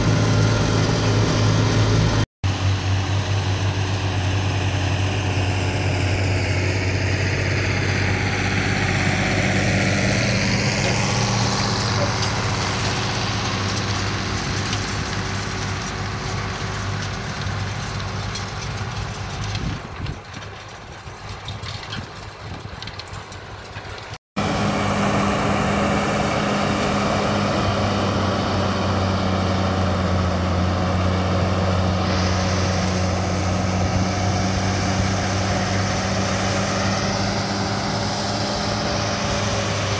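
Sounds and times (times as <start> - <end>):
diesel tractor engine under load: 0.0 - 39.9.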